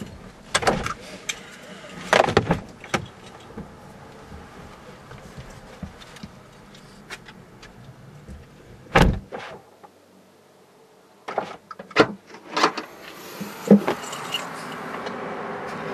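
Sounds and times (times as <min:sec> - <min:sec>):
steady rushing noise: 0:12.8 - 0:15.9.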